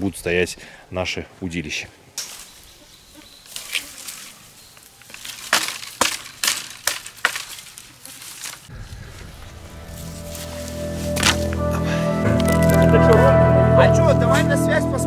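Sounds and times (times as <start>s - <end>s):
axe chopping branches: 3.5s - 8.7s, 10.3s - 11.6s, 12.4s - 13.0s
background music: 8.8s - 15.0s.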